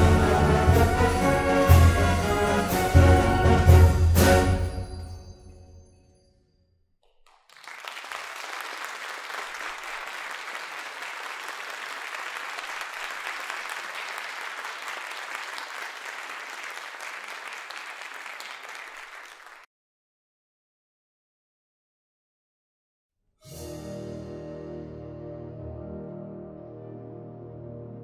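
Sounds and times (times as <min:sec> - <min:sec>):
audience applause: 0:07.1 - 0:19.7.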